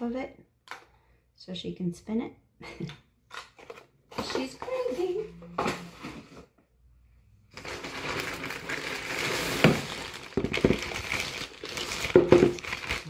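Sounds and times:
plastic bag crinkling: 0:07.5 - 0:13.0.

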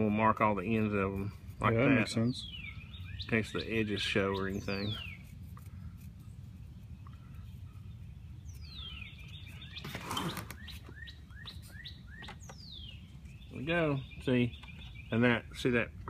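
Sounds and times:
short rising bird chirps: 0:08.4 - 0:15.2.

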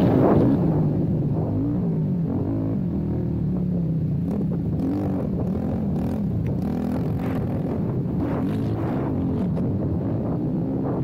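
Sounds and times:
quad engine revving: 0:04.2 - 0:10.8.

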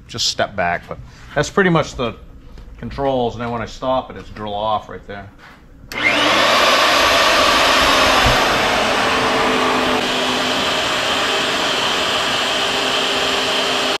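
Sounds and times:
drill bit cutting steel: 0:05.9 - 0:14.0
electric drill motor running: 0:05.9 - 0:14.0.

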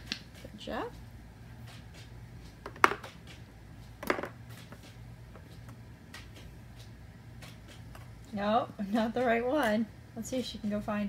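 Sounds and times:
plastic ball knocking on cardboard: 0:02.6 - 0:03.2, 0:04.0 - 0:04.4.

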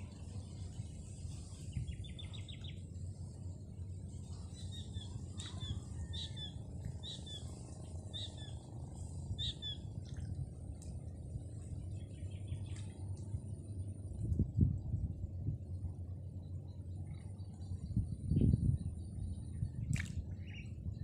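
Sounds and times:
small birds chirping: 0:00.0 - 0:10.3
low rumble: 0:00.0 - 0:21.0.

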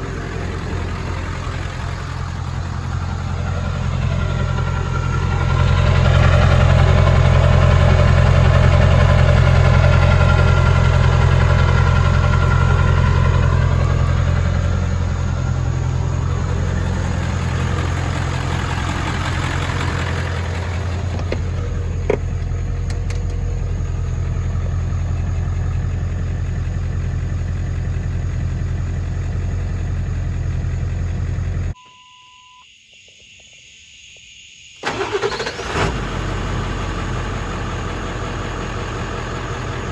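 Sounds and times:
diesel engine idling: 0:00.0 - 0:31.8, 0:34.8 - 0:39.9
short single-tone beep: 0:31.8 - 0:32.7.

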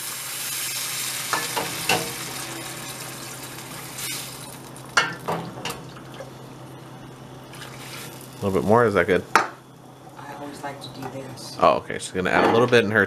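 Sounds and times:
broth being poured: 0:00.0 - 0:05.0, 0:07.5 - 0:08.6
skillet sizzling: 0:00.0 - 0:10.3.

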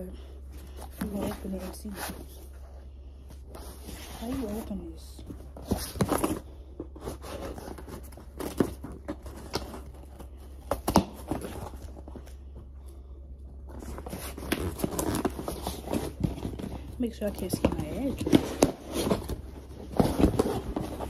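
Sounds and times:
cardboard box scraping and rustling: 0:03.6 - 0:10.2, 0:13.8 - 0:21.0.

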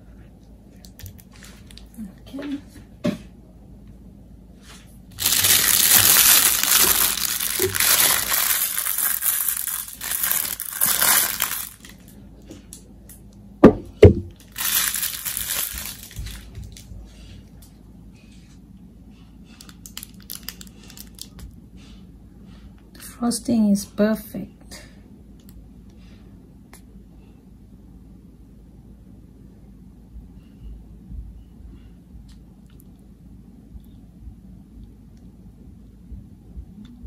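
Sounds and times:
plastic crinkling and rustling: 0:00.8 - 0:02.5, 0:04.7 - 0:12.8, 0:14.0 - 0:17.4, 0:19.5 - 0:21.6.

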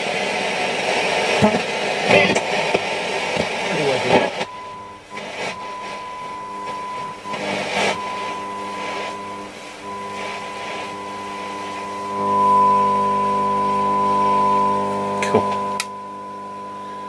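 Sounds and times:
radio hiss swishes: 0:01.3 - 0:14.2
radio test tone: 0:01.3 - 0:17.0.

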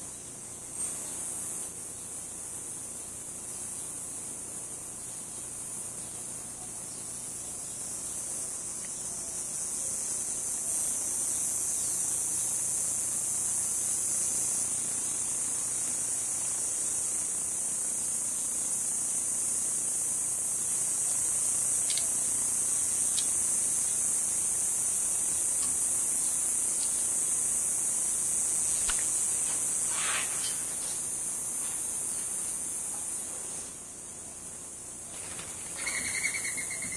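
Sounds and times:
insect chorus drone: 0:00.0 - 0:36.9
faint clicks: 0:21.8 - 0:22.1.

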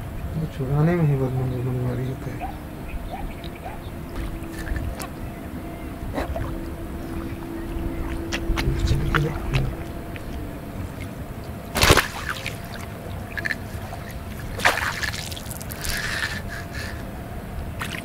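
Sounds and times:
water sloshing around landing net: 0:03.1 - 0:16.9, 0:17.8 - 0:18.0
sharp water splash: 0:06.2 - 0:16.8, 0:17.8 - 0:18.0.

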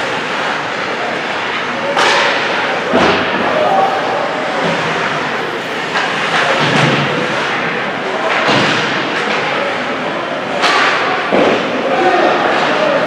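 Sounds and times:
hockey sticks and puck knocking: 0:10.6 - 0:13.0.

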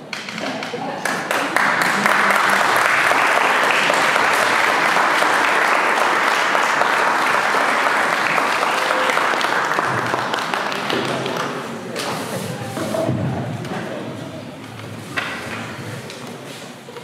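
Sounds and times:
crowd applauding: 0:01.0 - 0:11.9.

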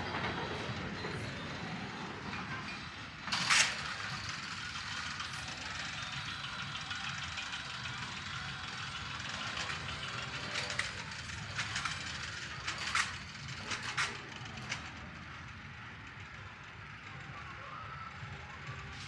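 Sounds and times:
roller coaster clacks and rattles: 0:00.0 - 0:19.0
roller coaster train rumbling: 0:00.0 - 0:19.0.

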